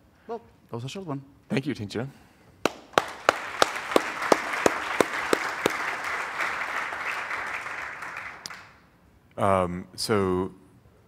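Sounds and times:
audience applauding: 2.6 - 8.9.

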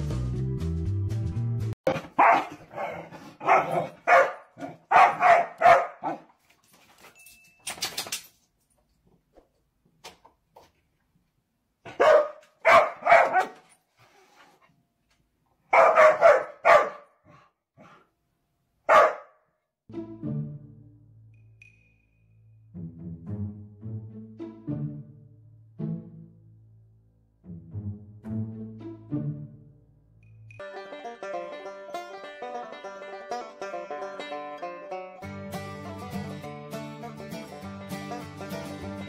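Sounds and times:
dog barking: 1.9 - 6.3, 11.8 - 13.7, 15.7 - 18.0, 18.8 - 19.5.

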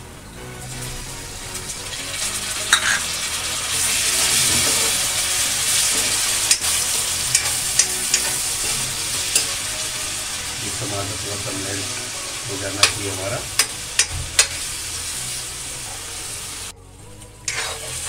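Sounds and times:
tomatoes sizzling in hot oil: 0.0 - 18.0
metal ladle scraping a pan: 1.5 - 16.7, 17.5 - 18.0.

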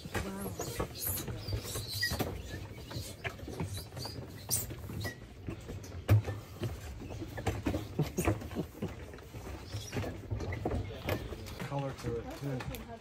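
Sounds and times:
footsteps on steps: 0.0 - 13.0.

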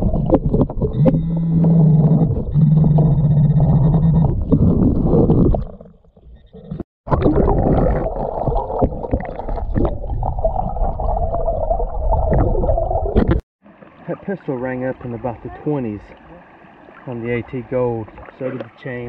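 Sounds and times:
underwater creek rush: 7.1 - 19.0.

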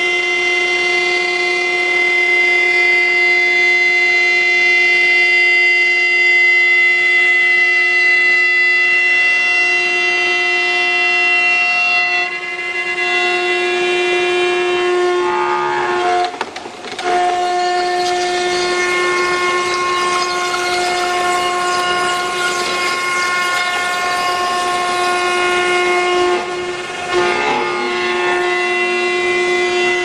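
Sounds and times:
router spindle high-pitched whine: 16.1 - 30.0.

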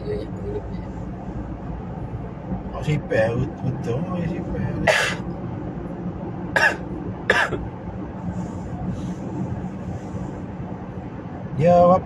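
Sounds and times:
steady low hum: 0.0 - 12.0
person coughing: 4.8 - 5.2, 6.6 - 7.6.

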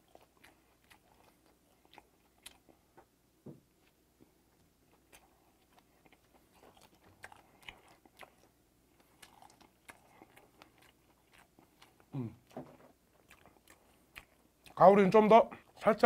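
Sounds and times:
man chewing: 0.0 - 3.2, 3.8 - 14.8
man humming: 12.1 - 12.4.

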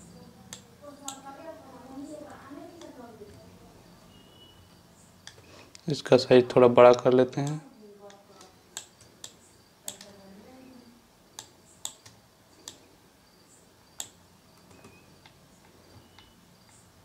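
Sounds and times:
low room noise: 0.0 - 17.0
mouse and keyboard clicks: 7.4 - 10.2, 11.3 - 12.9, 14.0 - 16.9.

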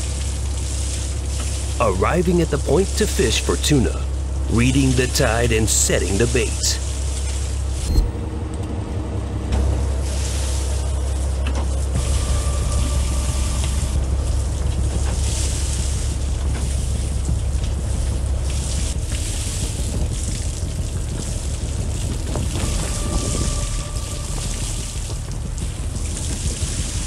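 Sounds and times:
water noise: 0.0 - 8.4, 9.5 - 27.0
boat engine rumbling: 0.0 - 27.0.

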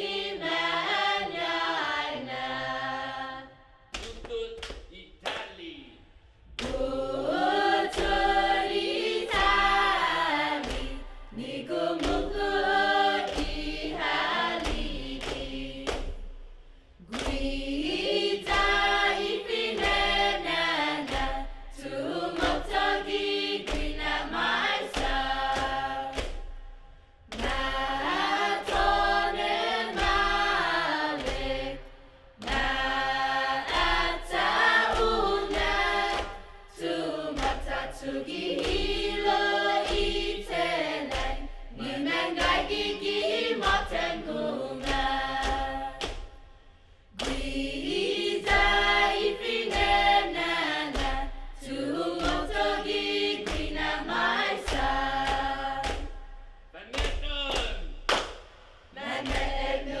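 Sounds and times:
group of voices chanting: 6.6 - 16.0, 17.0 - 26.2, 27.3 - 46.1, 47.1 - 56.1, 58.9 - 60.0
sharp percussive hits: 54.7 - 59.6.

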